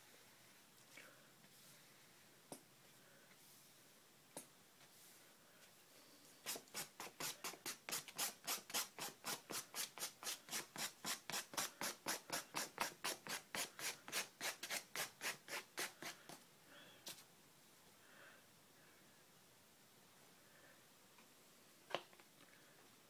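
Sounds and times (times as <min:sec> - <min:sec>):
knife scratching wet paper: 0:06.4 - 0:16.2.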